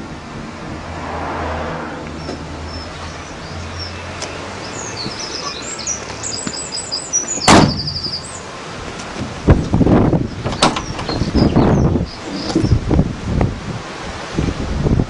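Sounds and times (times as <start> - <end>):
birds chirping: 2.1 - 8.6, 10.0 - 13.0
car door shutting: 7.4 - 8.2, 9.0 - 11.4.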